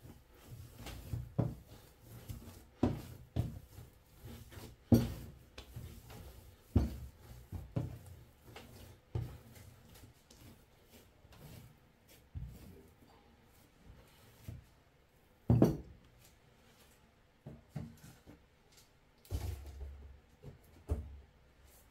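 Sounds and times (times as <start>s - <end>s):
dough thumping on countertop: 4.9s - 5.9s.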